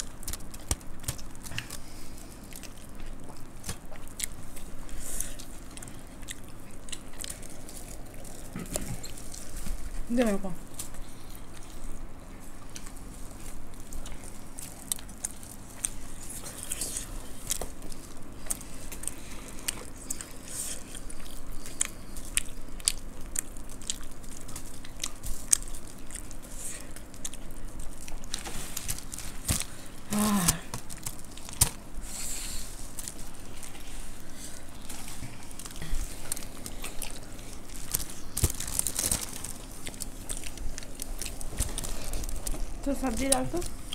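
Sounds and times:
people chewing and crunching snacks: 0:00.0 - 0:43.9
low voice humming: 0:30.0 - 0:30.8.

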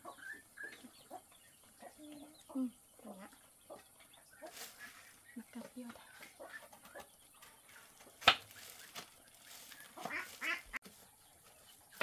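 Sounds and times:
poultry quacking: 0:04.4 - 0:05.4, 0:09.8 - 0:10.8.

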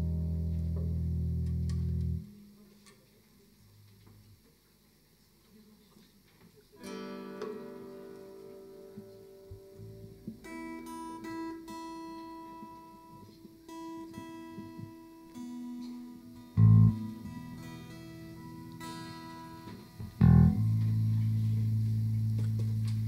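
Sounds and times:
acoustic guitar strumming: 0:06.8 - 0:23.0.

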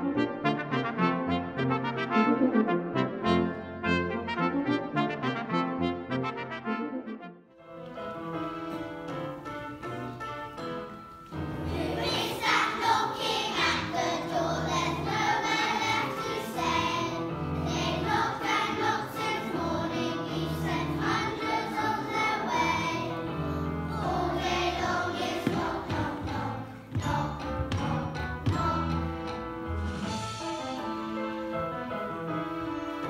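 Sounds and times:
children's choir singing: 0:11.3 - 0:30.2.

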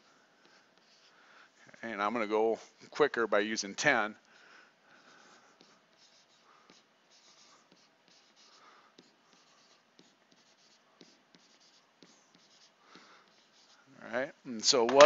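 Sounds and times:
stylus scratching and tapping on tablet: 0:00.0 - 0:01.2, 0:04.9 - 0:13.8, 0:14.8 - 0:15.0.

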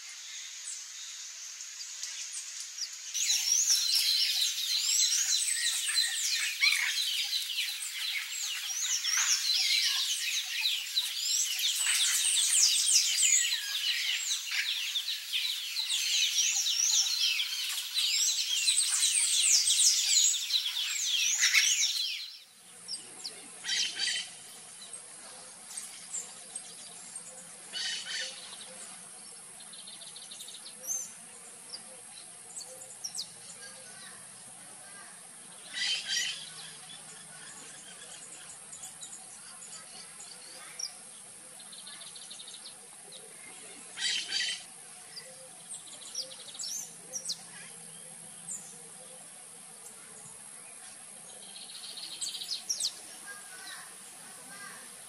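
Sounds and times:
faint bird calls: 0:26.2 - 0:55.0.

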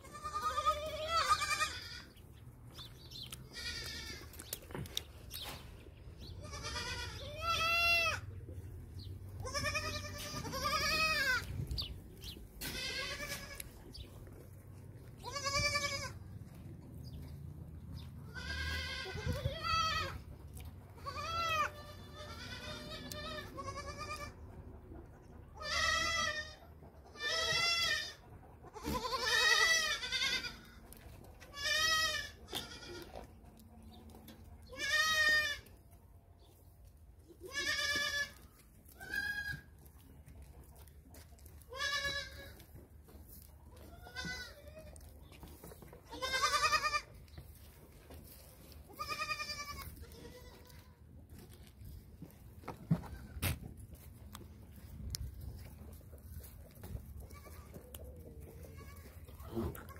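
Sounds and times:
goats bleating: 0:00.0 - 0:02.2, 0:03.1 - 0:04.6, 0:06.3 - 0:08.4, 0:09.3 - 0:14.0, 0:15.0 - 0:16.4, 0:18.2 - 0:20.3, 0:20.9 - 0:24.6, 0:25.6 - 0:33.3, 0:34.6 - 0:35.8, 0:37.3 - 0:39.8, 0:41.6 - 0:42.7, 0:43.6 - 0:45.1, 0:46.0 - 0:47.3, 0:48.6 - 0:51.6, 0:56.4 - 0:59.9.

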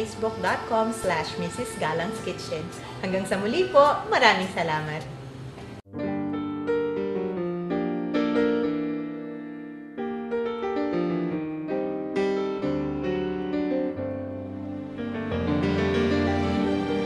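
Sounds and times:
soft piano music: 0:05.8 - 0:17.0.

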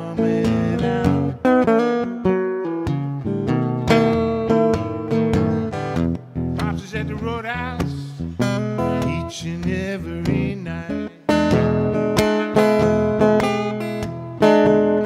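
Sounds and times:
man singing: 0:00.0 - 0:01.4, 0:06.6 - 0:14.0
acoustic guitar strumming blues: 0:00.0 - 0:15.0.

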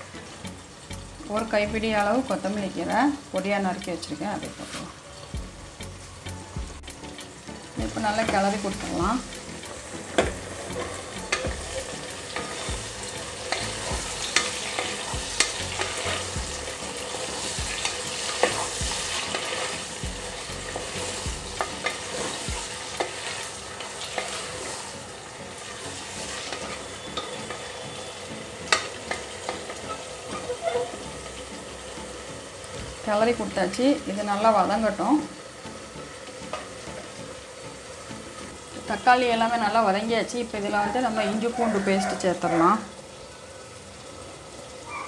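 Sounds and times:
food sizzling in oil: 0:00.0 - 0:45.0.

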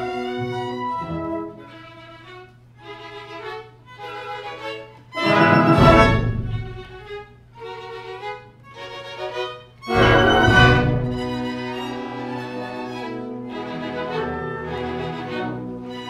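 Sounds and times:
orchestra playing: 0:00.0 - 0:01.6, 0:05.2 - 0:07.2, 0:09.9 - 0:16.0
violin phrases: 0:05.2 - 0:16.0.

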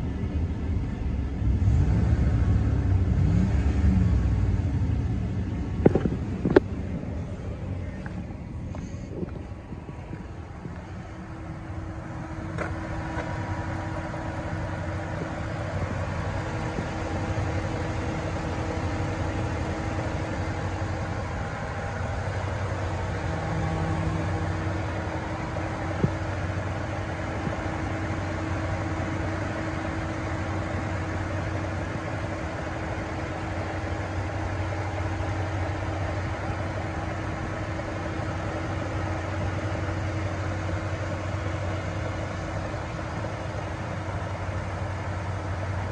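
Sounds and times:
pickup engine idling: 0:00.0 - 0:45.9.

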